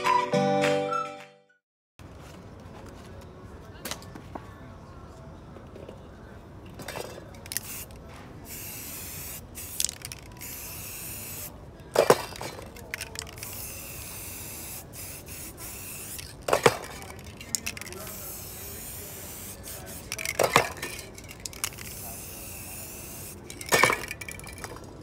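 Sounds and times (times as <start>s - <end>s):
spray paint can hissing: 7.4s - 11.6s, 12.9s - 24.5s.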